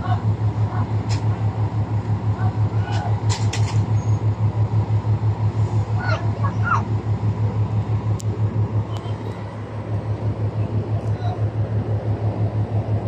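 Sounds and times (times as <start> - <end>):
ship diesel engine throbbing: 0.0 - 13.0.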